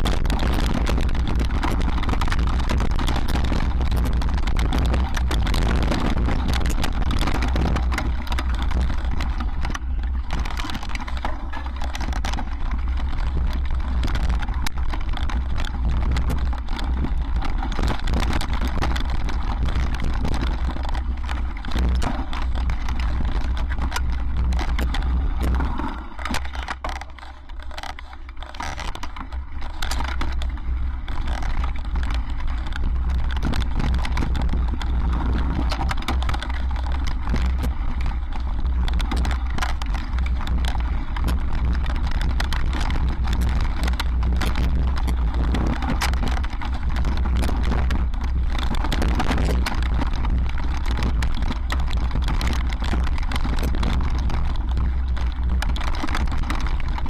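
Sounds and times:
bike rattling and knocking: 0.0s - 57.0s
tyres crunching on stones: 0.0s - 57.0s
wind rumble on microphone: 0.0s - 57.0s.

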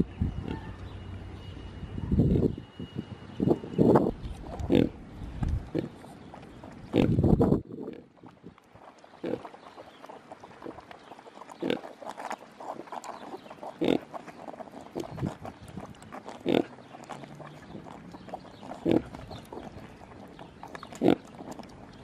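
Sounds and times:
pigs grunting: 4.4s - 5.0s, 5.7s - 22.0s.

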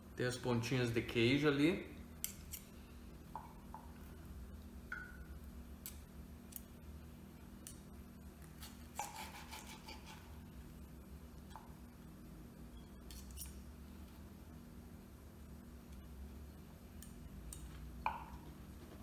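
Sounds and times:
knife and fork cutting on board: 8.6s - 10.3s.

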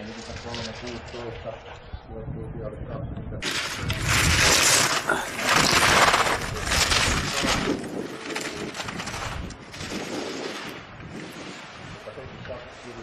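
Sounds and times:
skis scraping on hard snow: 3.4s - 13.0s.

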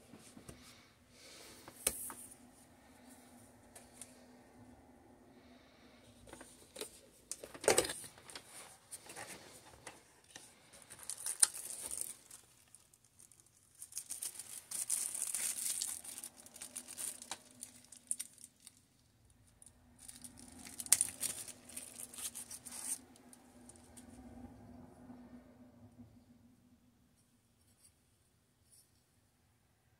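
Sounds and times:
cardboard rustling: 6.3s - 13.0s
plastic bag crinkling: 6.7s - 18.8s, 20.0s - 23.2s.

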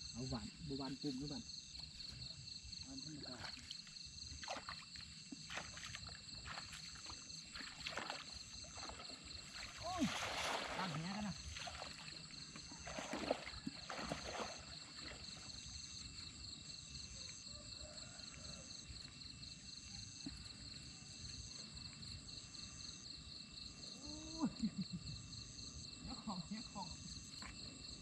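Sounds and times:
insects chirring: 0.0s - 28.0s
water sloshing from wading: 3.0s - 16.4s.

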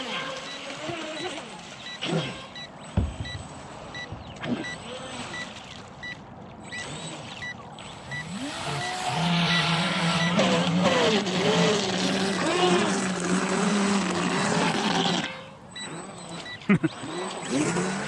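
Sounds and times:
model boat motor whining: 0.0s - 18.0s
short high beeps: 0.4s - 10.6s, 15.3s - 16.9s.

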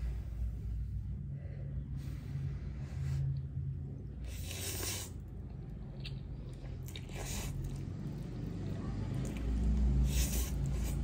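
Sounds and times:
low background hum: 0.0s - 11.0s
noodles being slurped: 4.3s - 5.3s, 6.4s - 11.0s.

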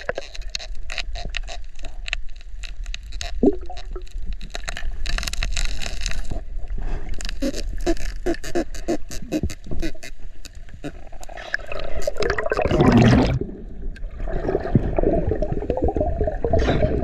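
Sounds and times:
low rumble of moving water: 0.0s - 17.0s
underwater clicks and crackles: 0.0s - 17.0s.

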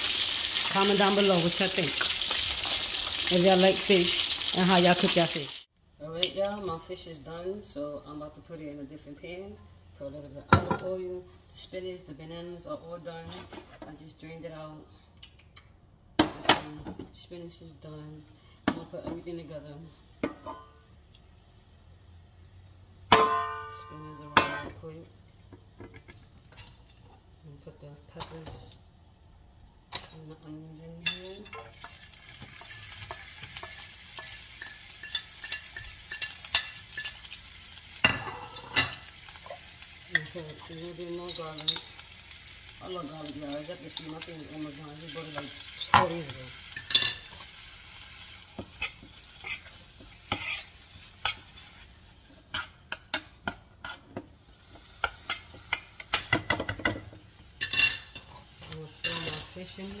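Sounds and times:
vegetables sizzling in oil: 0.0s - 5.7s, 28.1s - 60.0s
utensil scraping pan: 48.7s - 52.8s.

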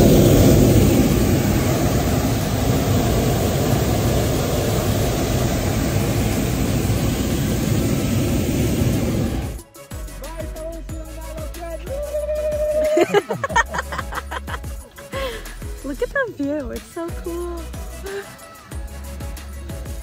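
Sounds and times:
propane burner roaring: 0.0s - 9.6s.

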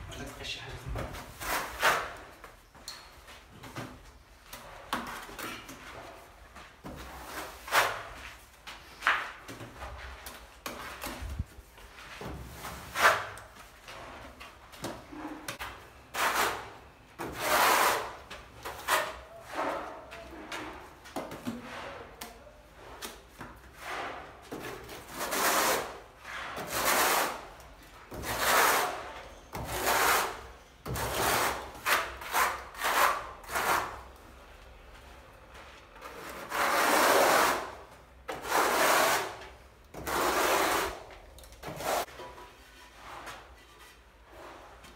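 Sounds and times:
trowel scraping adhesive: 15.1s - 20.0s, 25.0s - 34.1s, 36.1s - 42.1s.

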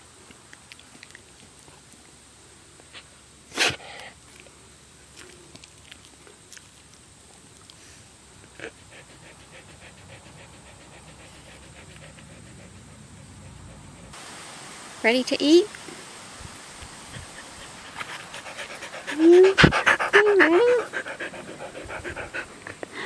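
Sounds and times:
dog panting: 8.4s - 14.2s, 17.0s - 23.0s.

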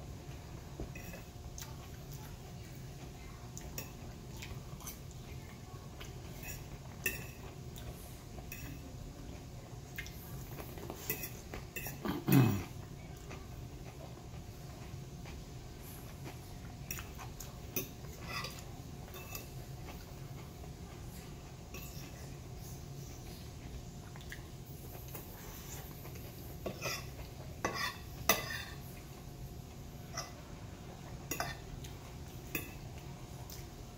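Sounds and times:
fork clinking against a plate: 0.8s - 1.3s, 6.3s - 7.6s, 8.4s - 8.8s, 10.8s - 12.7s, 16.9s - 19.6s, 21.7s - 22.2s, 26.0s - 28.8s, 30.1s - 30.4s, 31.2s - 31.7s, 32.4s - 33.0s.

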